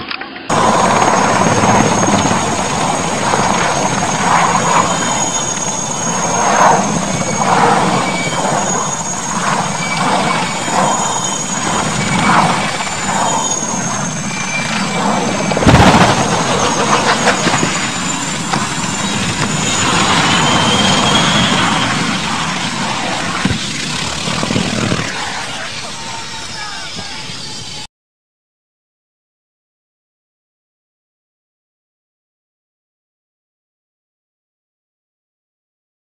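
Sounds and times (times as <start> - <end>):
engine and rotor noise: 0.0 - 27.9
helicopter turbine whine: 0.4 - 27.9
helicopter crashing: 0.5 - 27.9.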